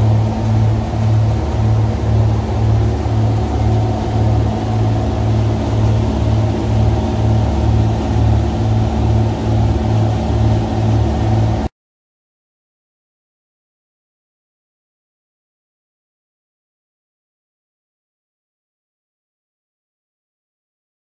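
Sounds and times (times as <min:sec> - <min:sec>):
boat engines droning: 0:00.0 - 0:11.7.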